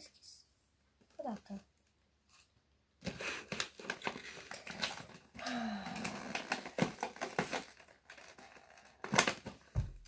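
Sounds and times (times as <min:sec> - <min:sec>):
plastic packaging clicking and crinkling: 0:03.0 - 0:10.0.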